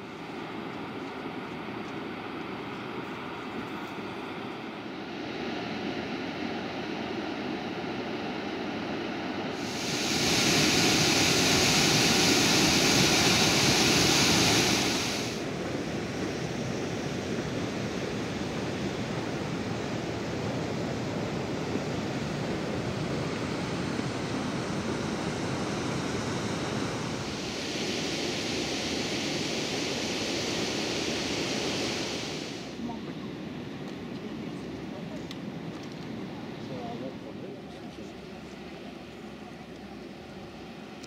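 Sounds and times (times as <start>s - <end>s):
steady rushing noise: 4.0s - 34.7s.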